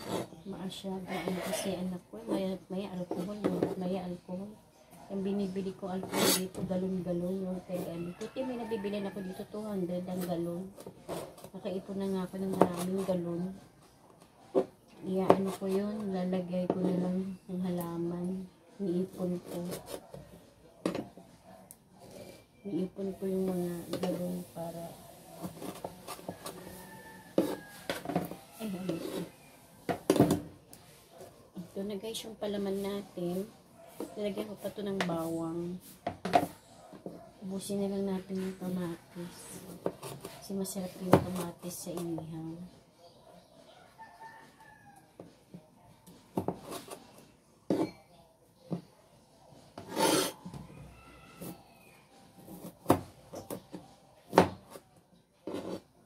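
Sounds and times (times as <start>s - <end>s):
knife scraping across board: 0.0s - 0.4s, 6.0s - 6.6s, 25.4s - 29.4s, 49.8s - 50.5s, 54.6s - 55.9s
knife cutting on plastic board: 49.8s - 50.4s.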